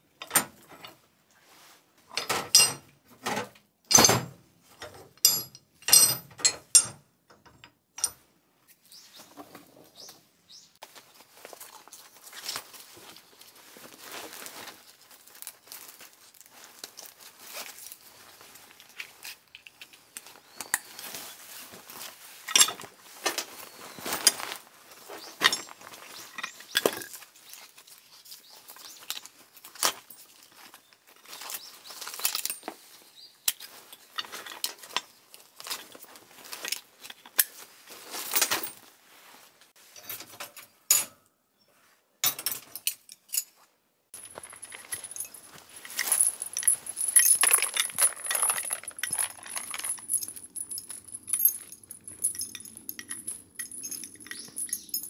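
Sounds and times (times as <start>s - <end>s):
clinks and knocks of handled objects: 0.2s - 1.0s, 2.1s - 8.2s, 22.0s - 24.6s, 25.2s - 28.0s, 28.7s - 32.8s, 44.2s - 55.0s.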